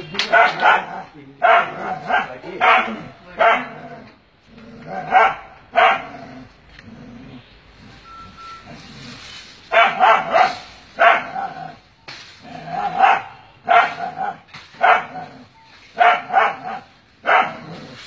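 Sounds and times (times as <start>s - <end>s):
dog barking: 0.2s - 3.8s, 4.9s - 6.2s, 9.7s - 11.8s, 12.8s - 15.3s, 16.0s - 17.7s.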